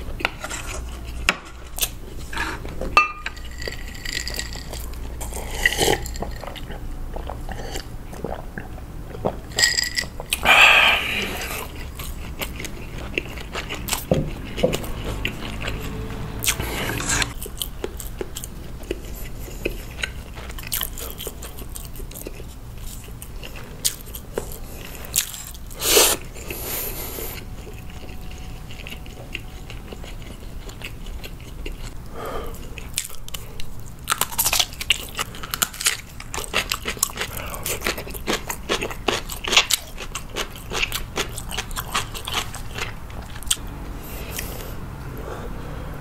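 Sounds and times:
crisp crunching of pickle: 0.0s - 8.5s, 32.6s - 43.6s
chewing noodles: 0.0s - 45.2s.

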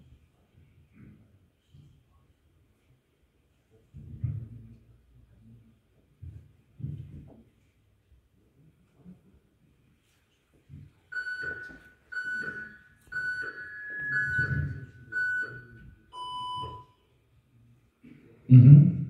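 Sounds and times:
countdown timer beeping: 11.2s - 16.9s.

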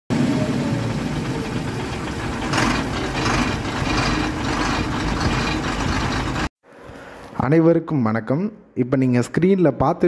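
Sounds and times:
diesel truck engine idling: 0.1s - 6.5s.

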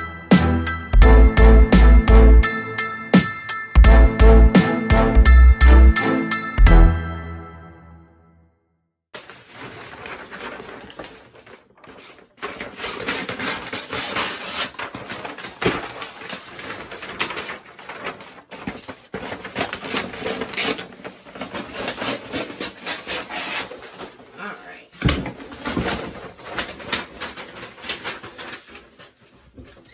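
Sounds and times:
paper crinkling and rustling: 9.2s - 29.9s.

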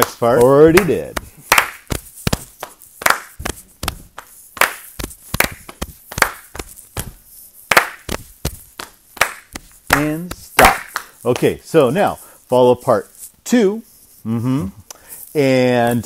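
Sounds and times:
hand claps: 0.0s - 11.6s
slaps on the thighs: 0.0s - 11.6s
pats on the chest: 0.0s - 14.3s.

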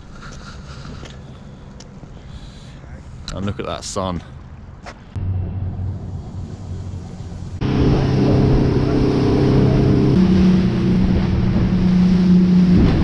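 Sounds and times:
rushing wind and water: 4.5s - 13.0s
outboard motor droning: 5.2s - 13.0s.

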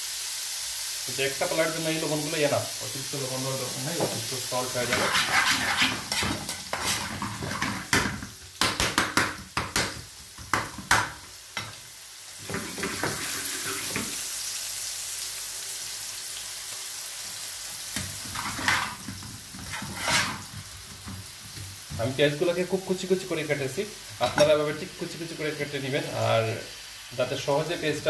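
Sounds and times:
onions sizzling in a pan: 0.0s - 28.0s
spoon scraping a pan: 4.0s - 8.3s, 12.4s - 14.2s, 18.0s - 21.6s.

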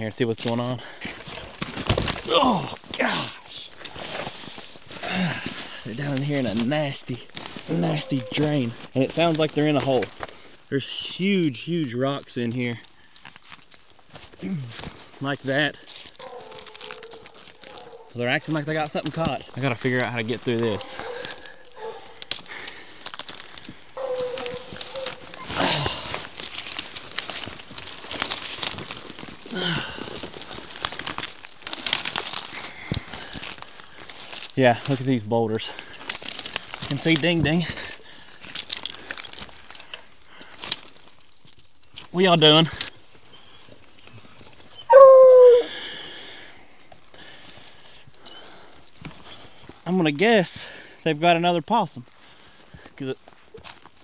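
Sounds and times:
crunching footsteps on rocks: 0.5s - 10.6s, 13.4s - 35.2s
hounds barking and calling: 7.8s - 8.4s, 16.2s - 18.2s, 20.6s - 22.4s, 24.0s - 25.6s, 44.8s - 45.8s
rustling brush: 14.3s - 34.5s.

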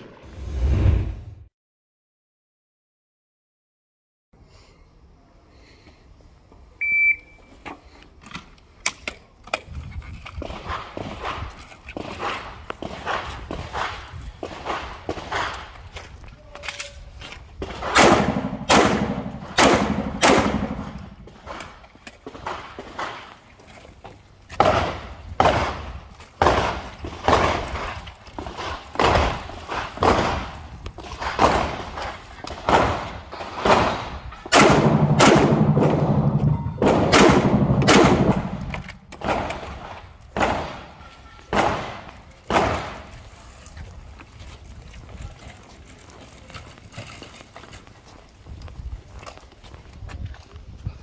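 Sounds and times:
pistol shots echoing: 17.6s - 23.3s, 24.6s - 28.0s, 28.6s - 43.1s.

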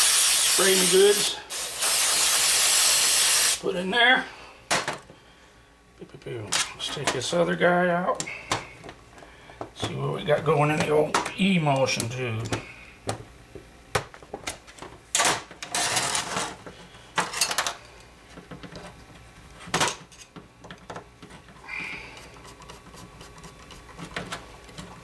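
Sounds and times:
short hissing bursts: 0.0s - 3.6s.

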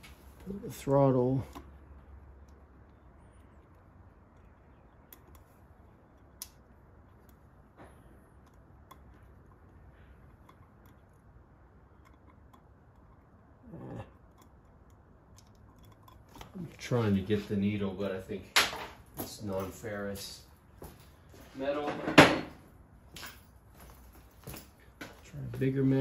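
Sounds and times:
small metal clicks and taps: 1.4s - 13.4s, 14.2s - 16.6s.

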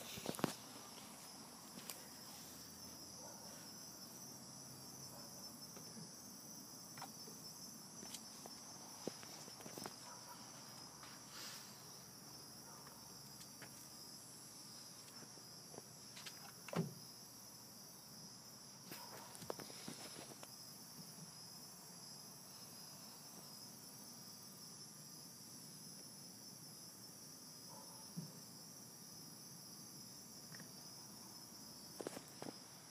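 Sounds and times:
crickets trilling: 0.0s - 32.9s.

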